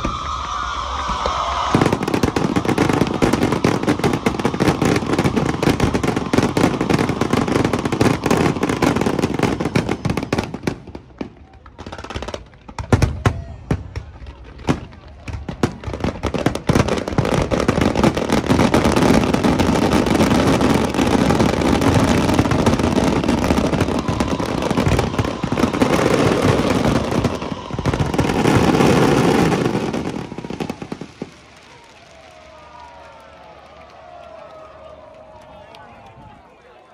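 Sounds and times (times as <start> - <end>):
firework bursts and crackling: 0.0 - 36.0.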